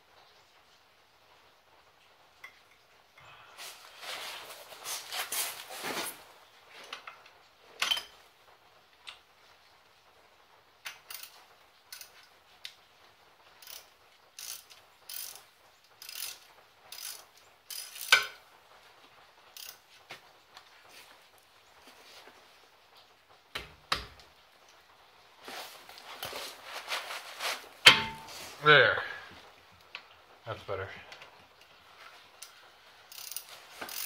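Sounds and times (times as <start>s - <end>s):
ratchet wrench clicking: 10.9s - 12.2s, 13.6s - 15.4s, 16.0s - 18.4s, 19.6s - 19.8s, 33.1s - 34.0s
sharp metallic knock: 27.9s - 28.3s.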